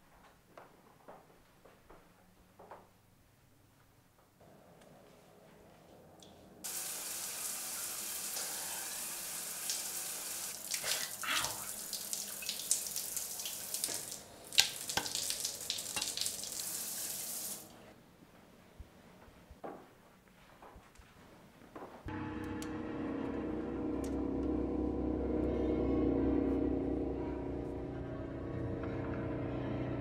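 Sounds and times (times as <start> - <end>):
shower head spraying water: 6.7 - 17.7.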